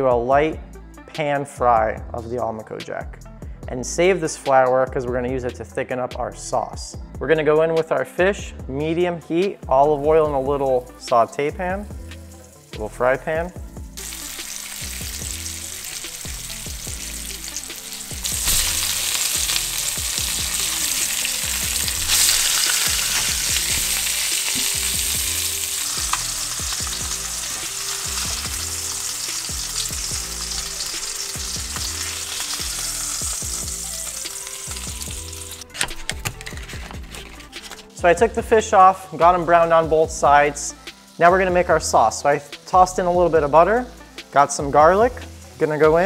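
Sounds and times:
fish fillets sizzling in a pan: 12.3 - 12.8, 14.0 - 35.6.

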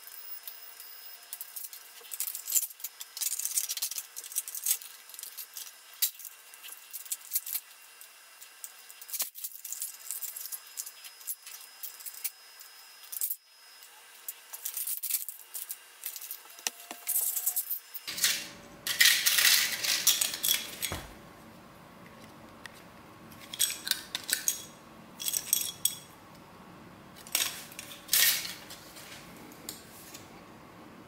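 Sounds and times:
metal parts clinking and clattering: 1.3 - 7.7, 14.5 - 16.4, 17.1 - 21.1, 23.3 - 26.2, 27.2 - 28.8.

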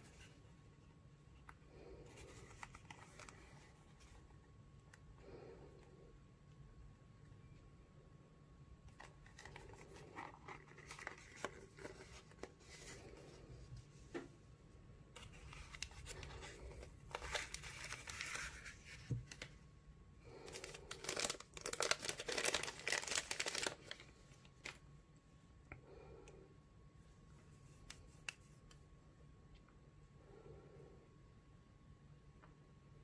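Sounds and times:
plastic packaging crinkling: 8.9 - 13.1, 15.2 - 19.6, 20.3 - 24.8.

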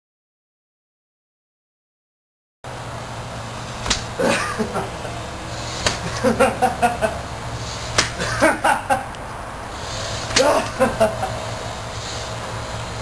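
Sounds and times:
steady low hum: 2.7 - 13.0
person laughing: 4.2 - 5.2, 6.0 - 7.2, 8.1 - 9.1, 10.4 - 11.5.

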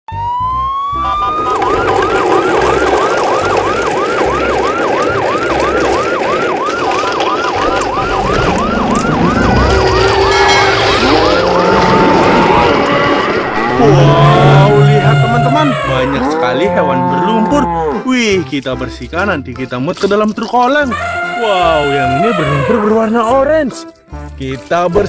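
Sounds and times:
siren wailing and yelping: 0.1 - 16.4, 20.9 - 23.1.

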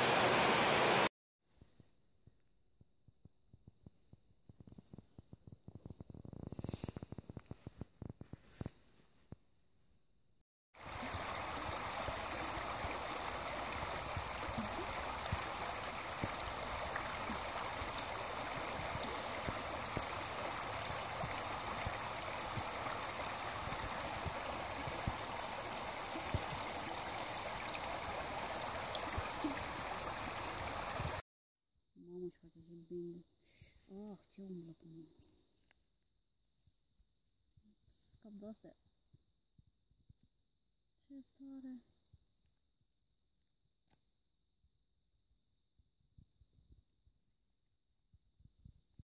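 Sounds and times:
river rushing over stones: 0.0 - 1.1, 10.8 - 31.2
insects chirping: 1.8 - 31.1.

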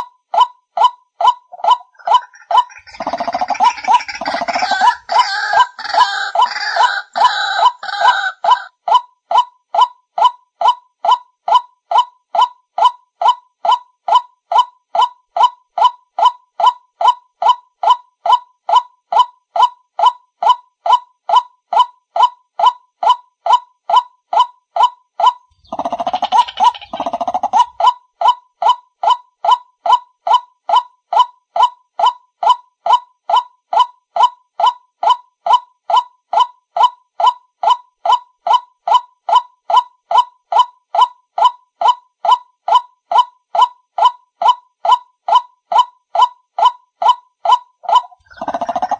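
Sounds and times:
repeated bird call from speaker: 1.2 - 8.7, 47.5 - 48.9
harsh bird call: 1.6 - 8.7.

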